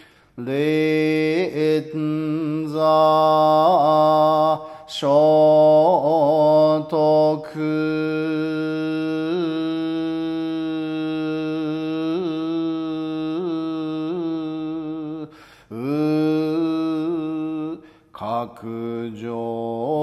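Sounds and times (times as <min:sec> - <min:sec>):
breath: 0:00.0 - 0:00.4, 0:04.6 - 0:04.9, 0:15.3 - 0:15.7, 0:17.8 - 0:18.1
man chanting slowly: 0:00.4 - 0:20.0.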